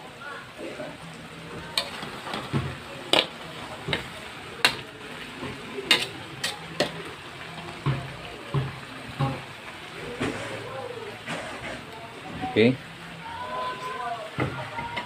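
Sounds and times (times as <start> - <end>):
metal spatula scraping a wok: 1.8 - 2.5, 5.8 - 7.0, 11.2 - 11.9.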